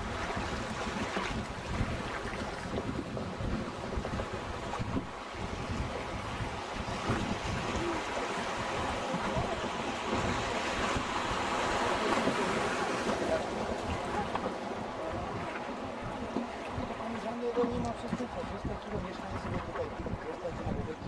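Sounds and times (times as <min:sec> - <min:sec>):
wind rumbling on microphone: 0:00.0 - 0:21.0
river rushing over rapids: 0:06.3 - 0:19.4.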